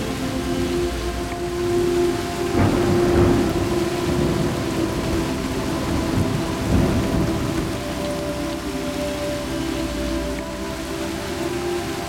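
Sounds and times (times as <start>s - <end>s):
heavy rain: 0.0s - 12.0s
rolling thunder rumbles: 1.7s - 8.7s.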